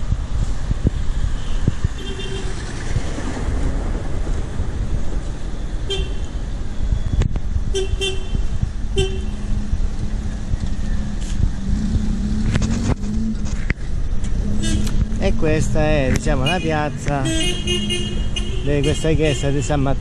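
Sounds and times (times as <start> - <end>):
low traffic rumble: 0.0 - 20.0
vehicle horns tooting: 1.4 - 2.6, 5.9 - 6.3, 7.7 - 9.4, 14.5 - 15.0, 16.3 - 19.8.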